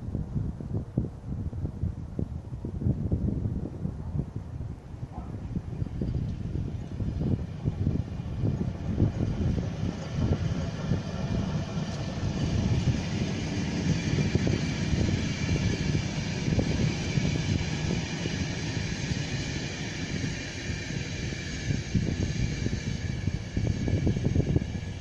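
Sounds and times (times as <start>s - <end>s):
train wheels rumbling on rails: 1.4s - 25.0s.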